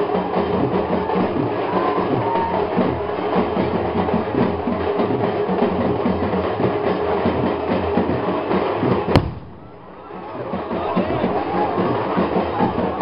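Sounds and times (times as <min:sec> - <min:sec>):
crowd din: 0:00.0 - 0:13.0
festival drumming: 0:00.0 - 0:13.0
sharp crack: 0:09.1 - 0:10.1.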